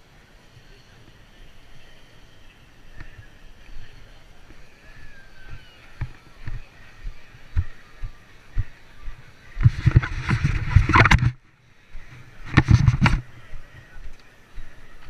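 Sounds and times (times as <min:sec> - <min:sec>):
rumbling clattering noise: 0:09.6 - 0:11.4.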